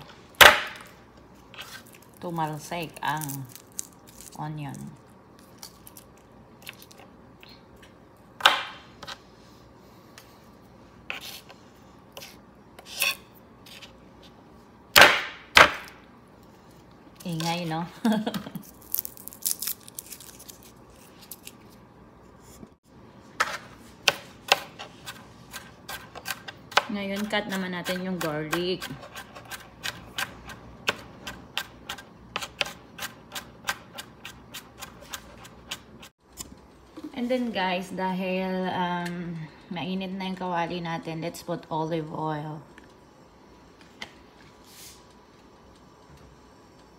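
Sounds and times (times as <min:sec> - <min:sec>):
knife chopping on cutting board: 0:14.9 - 0:15.9, 0:23.4 - 0:35.9.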